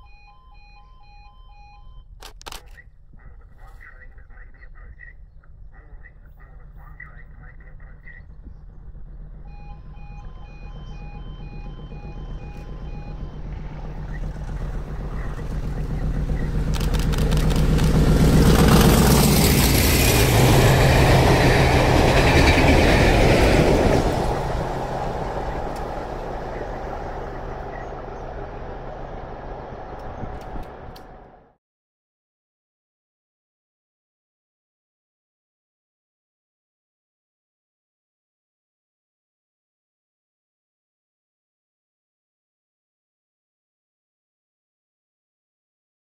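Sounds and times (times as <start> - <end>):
pulsing electronic beep: 0.0 - 2.1, 9.4 - 16.8
diesel locomotive engine hum: 0.0 - 31.6
train wheels rushing and clattering: 13.5 - 31.2.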